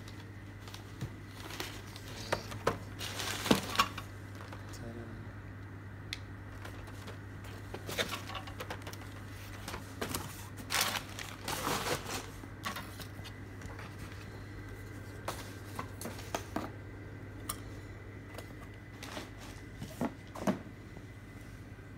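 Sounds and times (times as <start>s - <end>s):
packaging rustling and crinkling: 0.0s - 4.6s, 6.5s - 16.4s
steady low hum: 0.0s - 21.9s.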